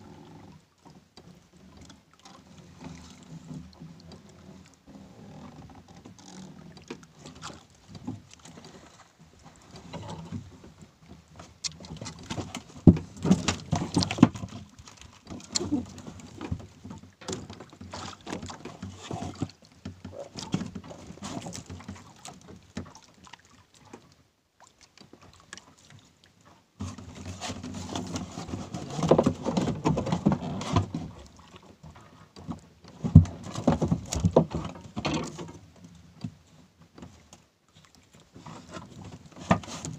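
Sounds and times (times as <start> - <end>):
knocks and clatter on boat deck: 5.3 - 23.3, 26.8 - 37.4, 38.4 - 39.9.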